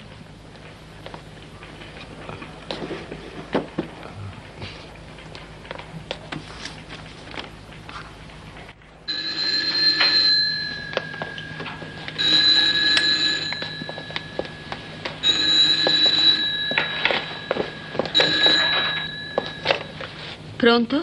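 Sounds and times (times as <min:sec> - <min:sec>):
telephone ringing: 0:09.0 - 0:20.4.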